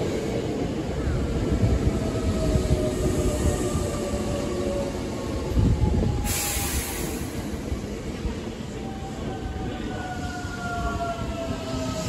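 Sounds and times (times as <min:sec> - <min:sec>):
train wheels rumbling on rail: 0:00.0 - 0:12.0
air hiss: 0:06.2 - 0:07.6.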